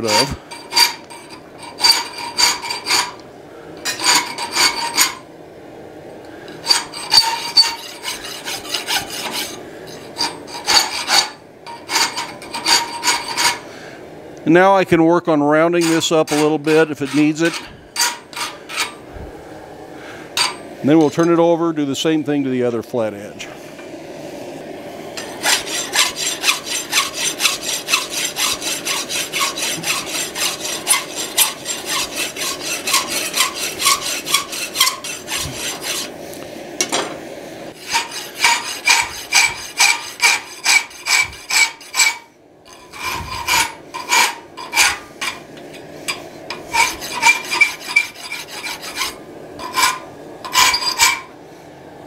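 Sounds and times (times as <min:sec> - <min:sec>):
hand file rasping on steel: 0:00.0 - 0:03.2, 0:03.9 - 0:05.2, 0:06.6 - 0:13.7, 0:15.7 - 0:19.0, 0:25.2 - 0:36.2, 0:37.8 - 0:45.4, 0:46.1 - 0:51.3.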